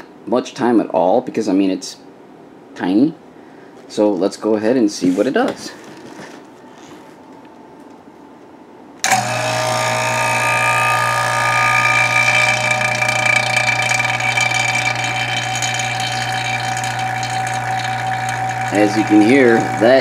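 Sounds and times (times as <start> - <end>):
vacuum pump humming: 9.0 - 20.0.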